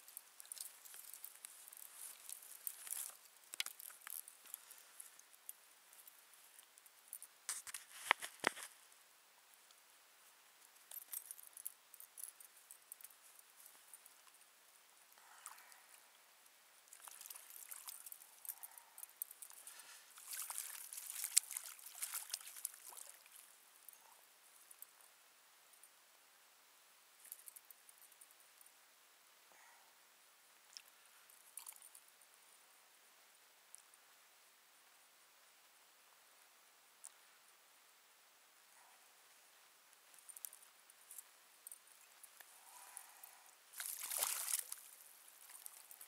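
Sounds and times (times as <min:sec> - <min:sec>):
water splashes and drips: 0:16.9 - 0:23.5, 0:43.7 - 0:46.0.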